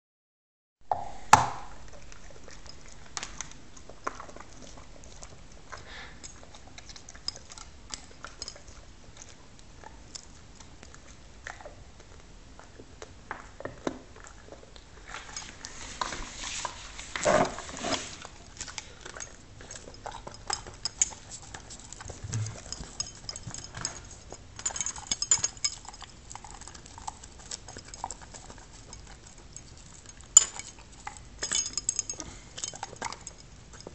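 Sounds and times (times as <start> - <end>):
dog licking: 18.3 - 31.4.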